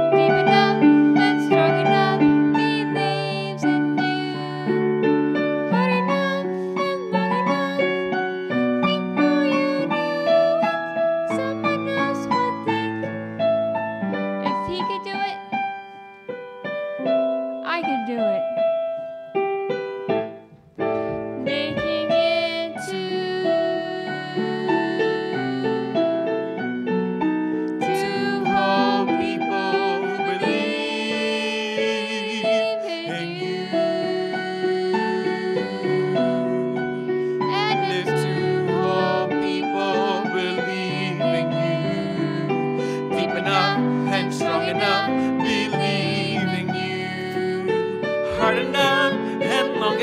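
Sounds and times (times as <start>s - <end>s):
piano accompaniment: 0.0s - 50.0s
man singing with vibrato: 27.9s - 36.3s, 37.5s - 50.0s.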